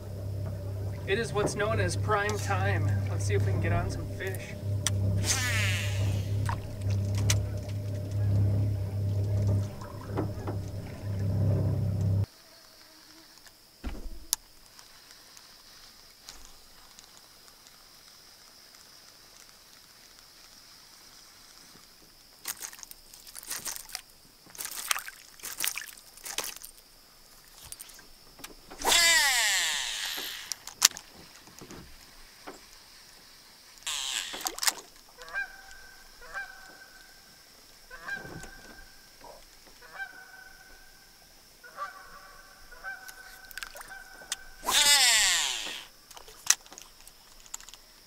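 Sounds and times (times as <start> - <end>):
distant goose-like honking: 0.0 - 12.2, 33.9 - 34.5, 35.2 - 37.3, 37.9 - 45.9
fishing reel whirring: 0.0 - 12.2, 28.7 - 31.0, 33.9 - 35.8, 43.1 - 45.9.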